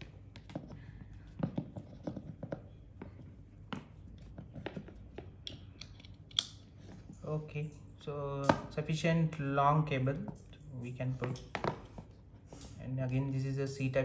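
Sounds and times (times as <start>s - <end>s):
cable handling clicks and rustles: 0.0s - 7.4s.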